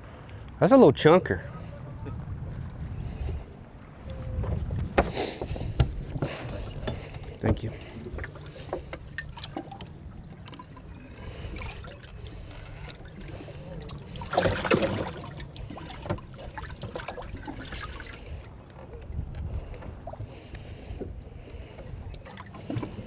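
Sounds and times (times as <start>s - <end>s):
water sloshing and trickling: 4.0s - 23.0s
water splash: 9.1s - 12.4s, 13.0s - 18.3s.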